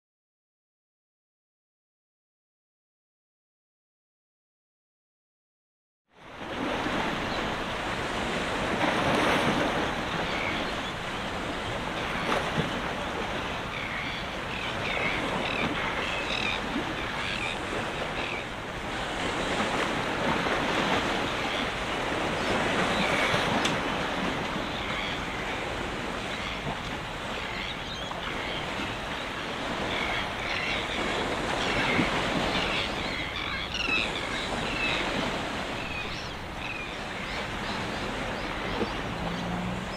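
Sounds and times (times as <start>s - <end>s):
waves washing on rocky shore: 28.3s - 39.9s.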